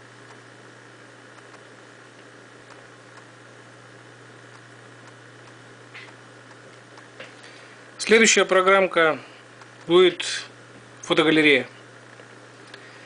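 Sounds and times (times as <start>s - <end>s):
low hum and hiss: 0.0s - 13.0s
faint ticks: 1.3s - 1.7s.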